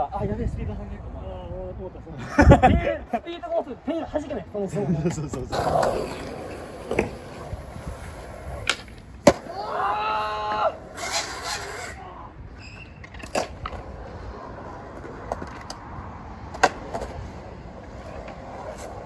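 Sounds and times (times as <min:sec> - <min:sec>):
skateboard wheels rolling on concrete: 0:02.3 - 0:19.0
skateboard pops and clacks: 0:05.5 - 0:07.5, 0:08.6 - 0:09.6, 0:13.0 - 0:13.9, 0:16.5 - 0:17.2
drawn-out shout: 0:09.4 - 0:12.4.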